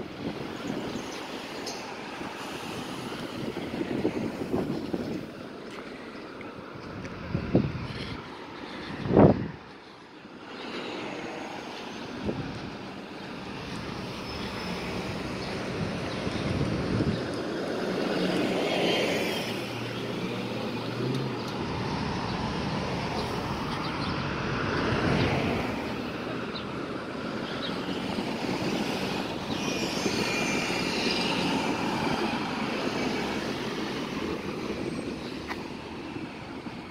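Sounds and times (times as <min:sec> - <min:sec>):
cars passing with tyre noise: 0:00.0 - 0:36.9
bus engine humming: 0:25.8 - 0:36.9.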